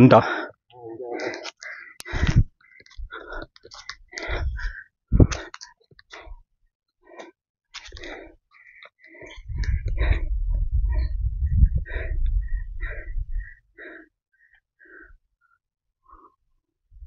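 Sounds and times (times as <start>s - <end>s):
low rumble: 9.4s - 13.4s.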